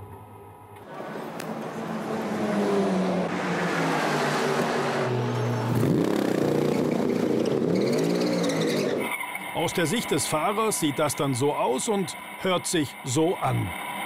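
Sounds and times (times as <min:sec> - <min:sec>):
race car engine revving: 0:00.8 - 0:09.1.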